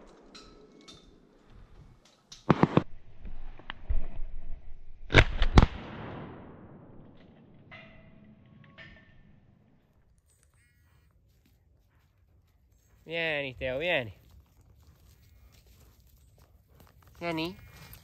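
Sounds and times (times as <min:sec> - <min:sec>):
shotgun bangs with echo: 0:02.5 - 0:02.8.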